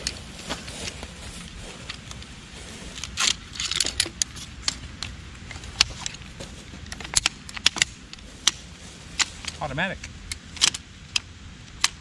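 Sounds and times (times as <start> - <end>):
bag and poles rustling: 0.0 - 7.2, 8.0 - 10.0.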